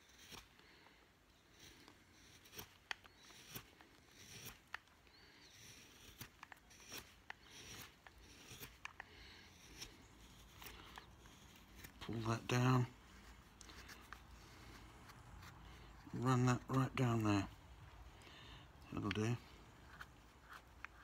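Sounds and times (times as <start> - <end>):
knife slicing wood: 1.5 - 14.3.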